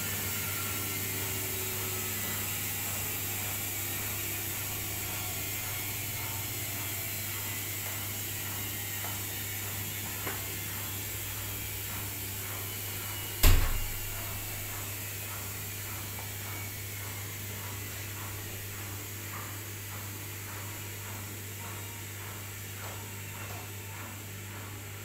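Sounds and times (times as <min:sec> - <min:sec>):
washing machine spinning: 0:00.0 - 0:25.0
loud thump: 0:13.4 - 0:14.0.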